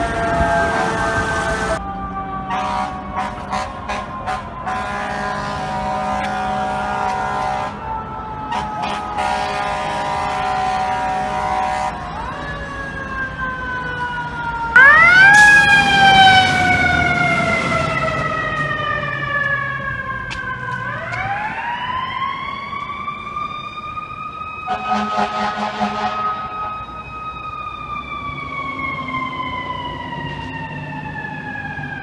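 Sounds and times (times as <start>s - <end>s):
fire truck air horns: 0.0s - 1.8s, 2.4s - 12.2s, 24.6s - 27.1s.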